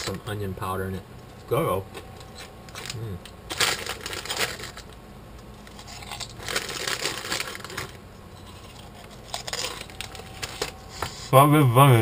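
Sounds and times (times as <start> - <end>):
crispy cracker being chewed: 5.6 - 10.8.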